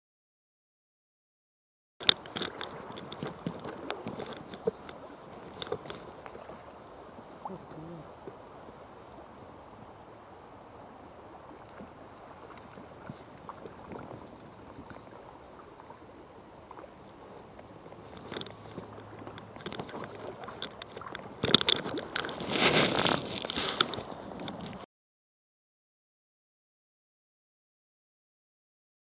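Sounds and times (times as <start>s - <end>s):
river water flowing: 2.0s - 24.8s.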